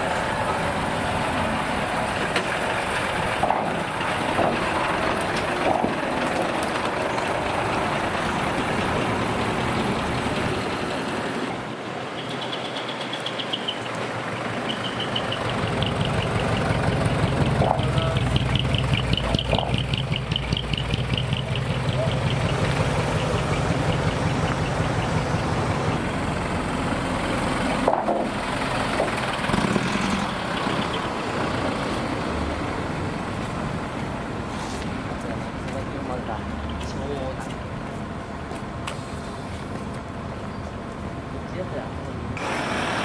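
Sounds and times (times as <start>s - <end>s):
truck engine low pulse: 0.0s - 11.6s, 13.2s - 35.8s
diesel trucks driving past: 0.0s - 43.0s.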